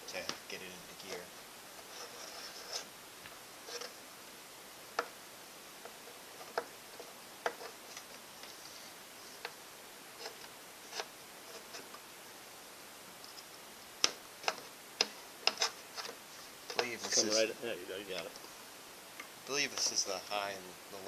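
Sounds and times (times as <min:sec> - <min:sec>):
screwdriver scraping metal: 0:15.4 - 0:17.4.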